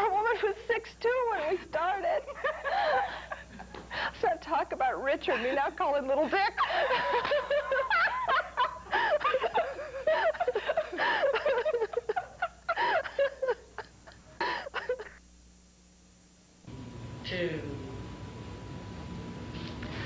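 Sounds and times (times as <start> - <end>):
women laughing: 2.2 - 3.8, 6.2 - 15.2.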